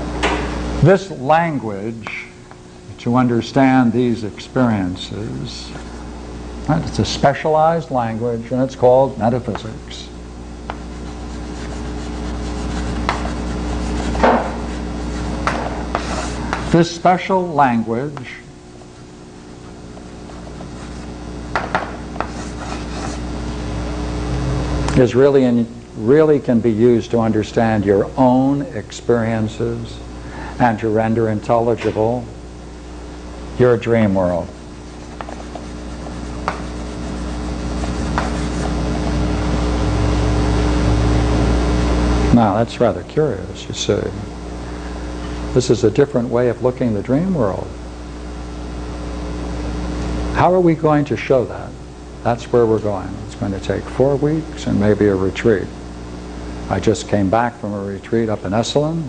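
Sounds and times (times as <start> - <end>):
low electrical hum: 0.0 - 59.0
rustling scrapes: 10.8 - 16.5, 22.2 - 23.3.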